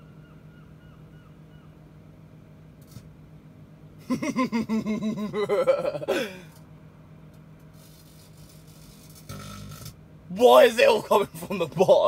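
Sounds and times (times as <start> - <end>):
microwave oven humming: 0.0 - 12.0
man laughing: 4.0 - 6.6, 10.8 - 12.0.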